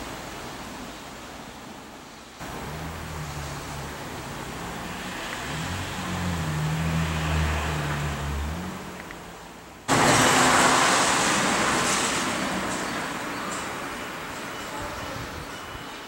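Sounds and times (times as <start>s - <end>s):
road vehicle engine hum: 0.0s - 16.0s
even rushing noise: 9.9s - 14.4s.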